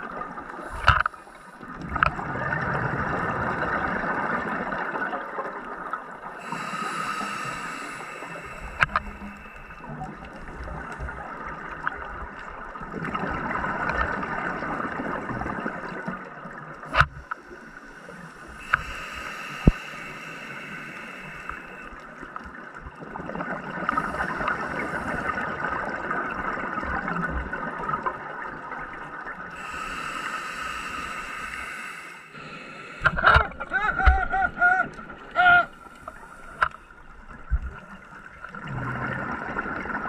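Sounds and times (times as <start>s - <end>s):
faint hiss: 6.3s - 10.0s, 17.2s - 22.3s, 29.5s - 33.2s.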